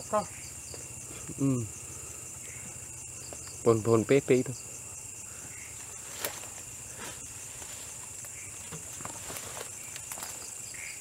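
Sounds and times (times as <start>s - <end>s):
crickets chirping: 0.0s - 11.0s
footsteps in undergrowth: 5.4s - 10.7s.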